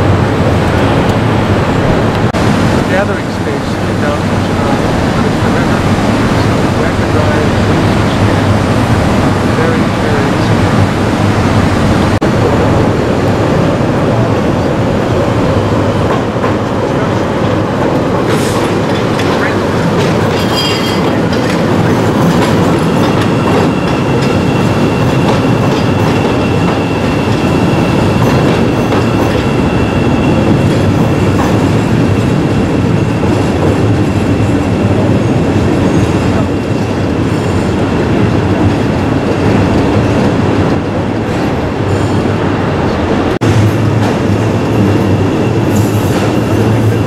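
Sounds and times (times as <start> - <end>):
train rumble and wheel clatter: 0.0 - 47.0
high wheel squeal: 20.4 - 21.2, 22.8 - 31.4.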